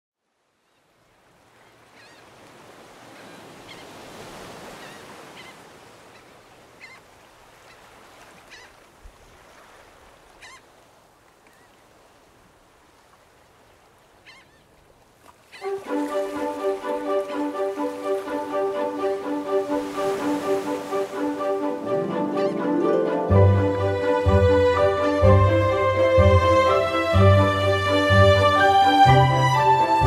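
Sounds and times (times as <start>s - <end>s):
surf washing: 1.0s - 30.0s
seabirds calling: 1.6s - 2.4s, 3.0s - 8.9s, 10.3s - 10.8s, 14.1s - 30.0s.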